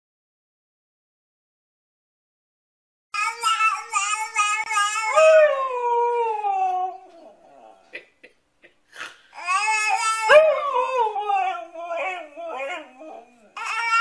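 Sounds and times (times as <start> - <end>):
dog howling: 9.9 - 14.0.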